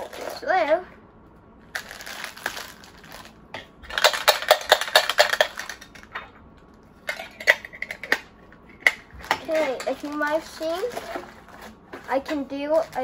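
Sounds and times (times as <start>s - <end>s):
plastic bag crinkling: 1.7s - 6.0s, 9.2s - 13.0s.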